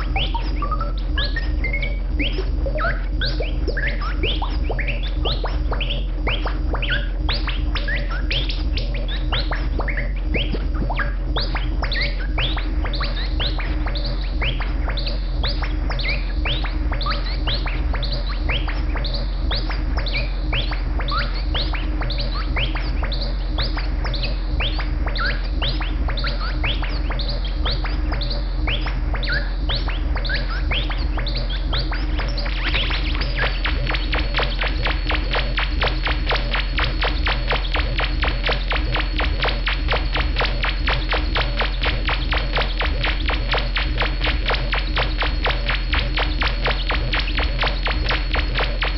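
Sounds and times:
fast buzzing pulse: 0:00.0 - 0:48.9
low synth drone: 0:00.0 - 0:48.9
synthesizer falling chirps: 0:00.0 - 0:48.9.

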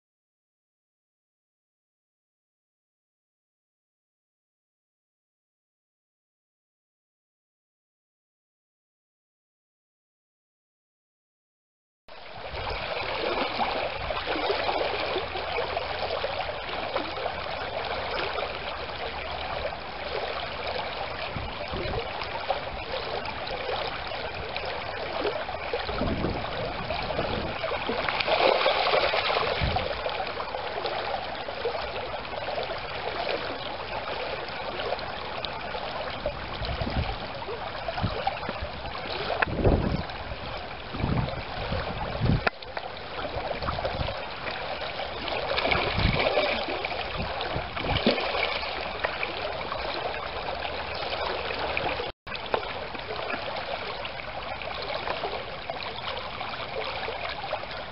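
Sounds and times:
stream babbling: 0:12.2 - 0:57.9.

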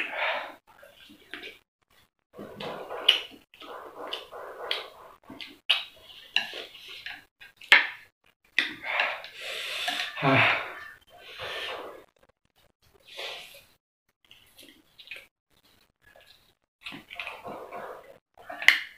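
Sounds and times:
person panting breaths: 0:08.8 - 0:12.0
chopsticks scraping on a plate: 0:08.9 - 0:12.1
low grunt: 0:10.0 - 0:12.1.

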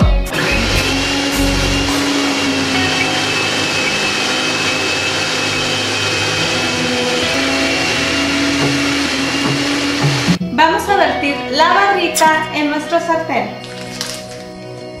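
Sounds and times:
blender running: 0:00.3 - 0:10.4.

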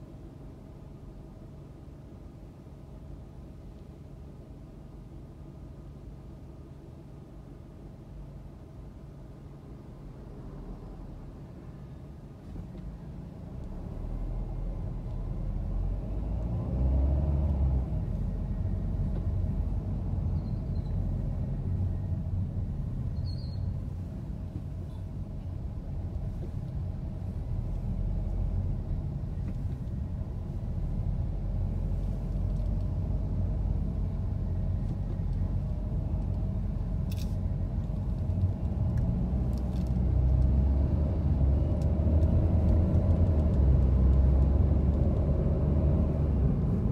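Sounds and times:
car engine and tyre rumble: 0:00.0 - 0:46.9.

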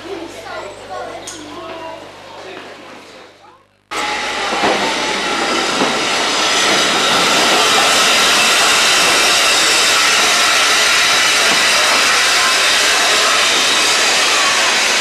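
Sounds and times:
steam hissing from locomotive: 0:03.9 - 0:15.0.

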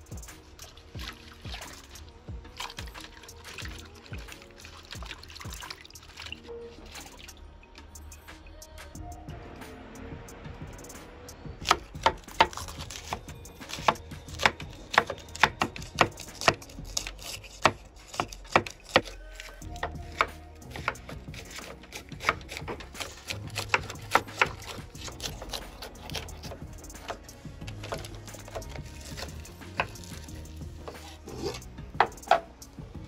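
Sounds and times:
knife chopping on wooden board: 0:11.6 - 0:32.5.

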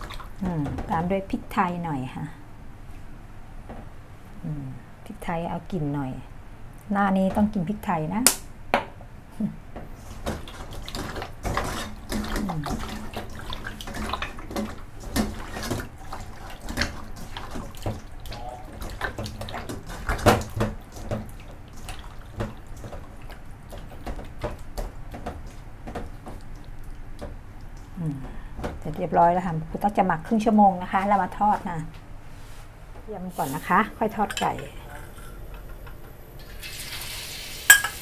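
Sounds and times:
wet squelches of marinating meat: 0:00.0 - 0:00.7, 0:09.9 - 0:29.0.

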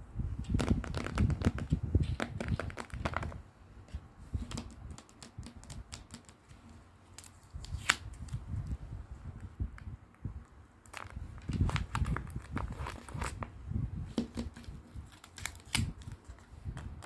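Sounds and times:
fingernails tapping on paper: 0:04.5 - 0:06.4
paper and tape crinkling: 0:10.8 - 0:13.5, 0:14.5 - 0:16.6.

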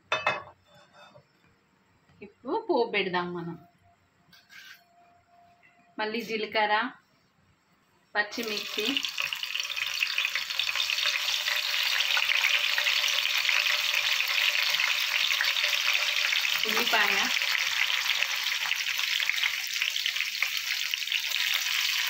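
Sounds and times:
chillies sizzling in hot oil: 0:08.3 - 0:22.0.

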